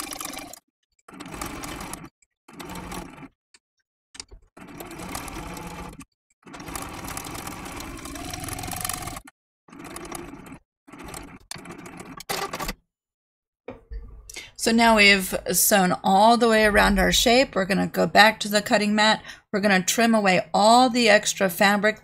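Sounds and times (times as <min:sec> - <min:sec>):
sewing machine stitching: 0:00.0 - 0:03.4, 0:04.5 - 0:12.8.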